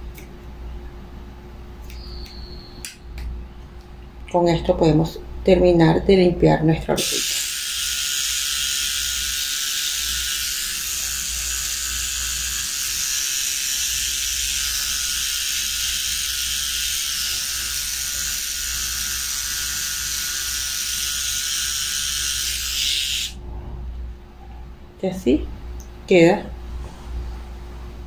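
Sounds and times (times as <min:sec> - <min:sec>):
pet trimmer buzzing: 0:07.0 - 0:23.4.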